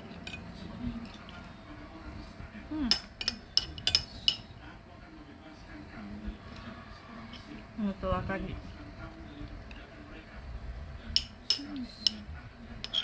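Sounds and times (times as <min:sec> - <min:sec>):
metal spoon clinking on ceramic plate: 0:02.9 - 0:04.4, 0:11.2 - 0:13.0.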